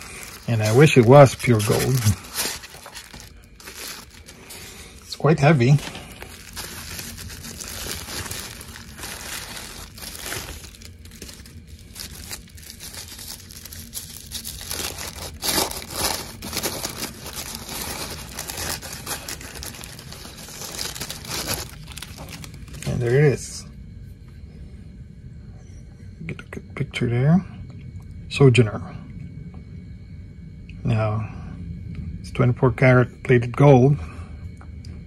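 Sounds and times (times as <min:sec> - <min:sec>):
tissue paper rustling: 0:00.0 - 0:23.1
bubble wrap crinkling: 0:00.0 - 0:23.4.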